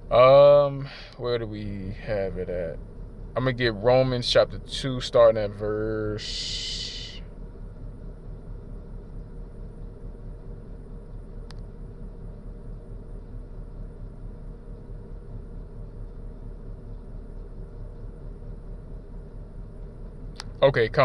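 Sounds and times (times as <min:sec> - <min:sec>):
faint hum: 0:00.0 - 0:21.0
low background rumble: 0:00.0 - 0:21.0
sharp click: 0:20.3 - 0:20.6.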